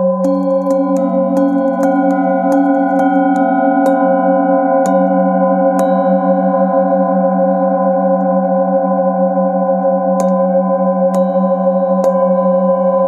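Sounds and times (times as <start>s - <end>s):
mallet strikes on bowls: 0.0s - 7.1s, 9.8s - 13.0s
singing bowls ringing: 0.0s - 13.0s.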